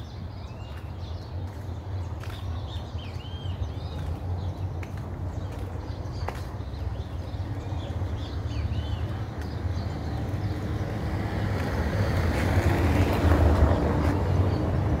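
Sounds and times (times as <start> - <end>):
wind rumble on microphone: 3.2 - 15.0.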